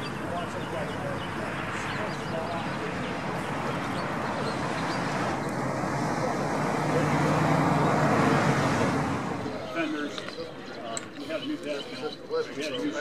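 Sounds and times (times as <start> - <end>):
vehicle engine running: 0.0 - 10.4
background chatter: 0.0 - 13.0.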